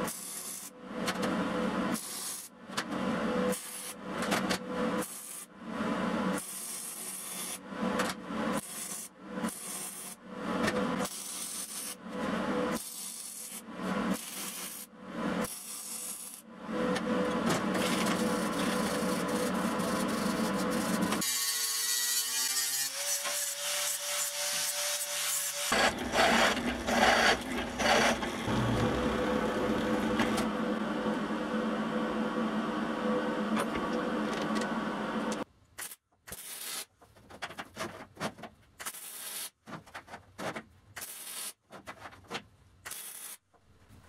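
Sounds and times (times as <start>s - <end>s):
hand tool rasping steel: 22.5s - 28.5s
motor whine: 25.7s - 35.4s.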